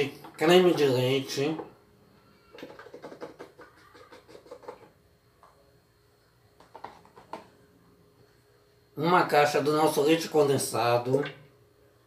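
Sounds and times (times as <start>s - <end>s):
cartons tapping on counter: 2.6s - 4.9s, 6.6s - 7.5s.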